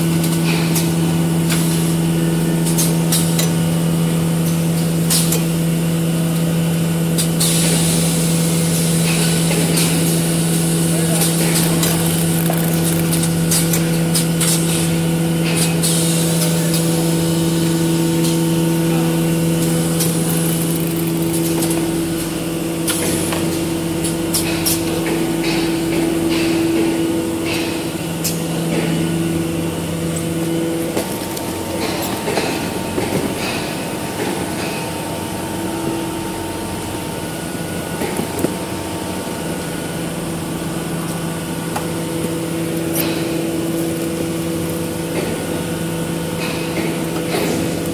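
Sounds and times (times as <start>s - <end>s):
machinery motor hum: 8.4s - 47.9s
mechanical clicks and clatter: 11.2s - 14.8s, 19.6s - 21.9s.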